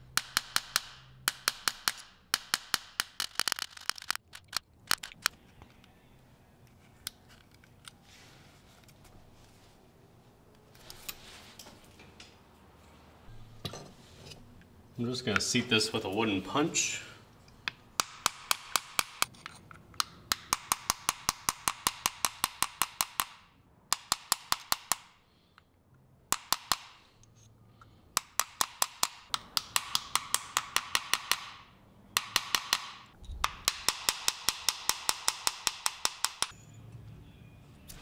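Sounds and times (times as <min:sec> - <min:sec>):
hammer tapping a wooden punch: 0:00.1 - 0:03.2, 0:17.7 - 0:19.3, 0:20.0 - 0:25.1, 0:26.3 - 0:27.0, 0:28.2 - 0:31.6, 0:32.2 - 0:36.5.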